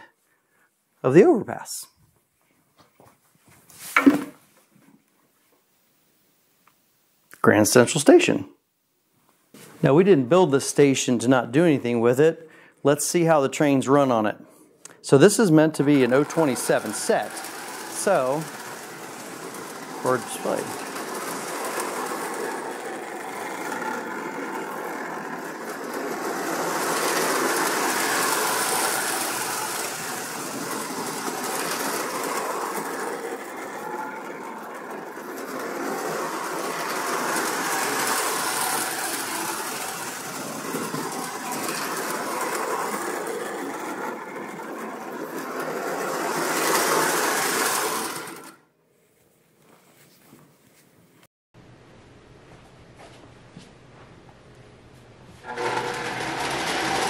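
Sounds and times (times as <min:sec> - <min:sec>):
wheels clattering on rails: 0:15.1 - 0:48.6, 0:55.4 - 0:57.0
toy train motor hum: 0:15.3 - 0:48.6, 0:55.4 - 0:57.0.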